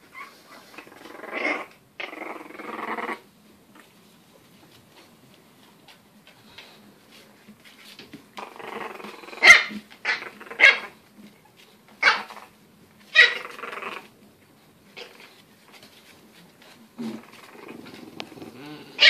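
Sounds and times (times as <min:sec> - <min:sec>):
puppy growling: 0:00.1 - 0:03.3, 0:08.3 - 0:11.0, 0:13.2 - 0:14.2, 0:16.9 - 0:19.0
high puppy barks: 0:09.4 - 0:11.0, 0:12.0 - 0:12.4, 0:13.1 - 0:13.6.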